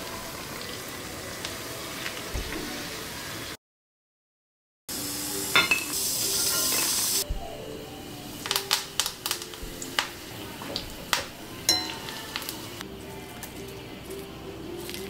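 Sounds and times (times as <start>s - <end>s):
soft background music: 0.0s - 3.5s, 4.9s - 15.0s
metal spoon clinking on dishes: 5.5s - 7.0s, 11.7s - 12.5s.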